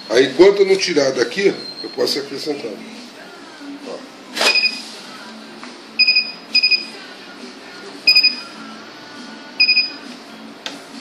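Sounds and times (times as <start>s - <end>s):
banknote counter alarm beeps: 6.0s - 6.9s, 8.1s - 8.4s, 9.6s - 10.0s.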